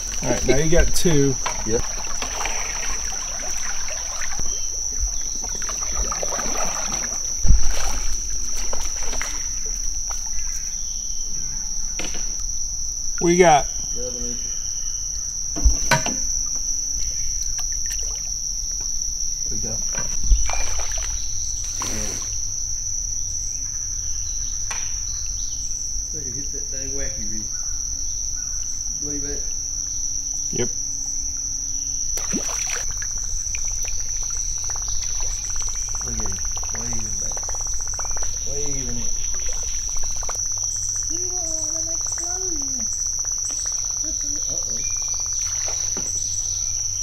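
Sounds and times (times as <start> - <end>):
insect chorus drone: 0.0 - 47.0.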